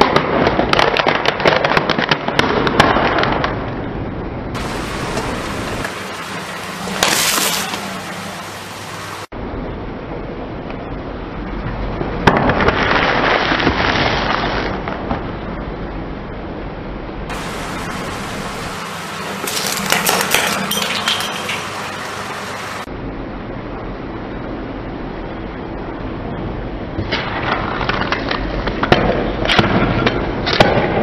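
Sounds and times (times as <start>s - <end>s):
steady background hiss: 4.6s - 12.2s, 15.4s - 29.5s
cardboard tube crunching under tyre: 7.0s - 7.8s, 12.4s - 15.0s.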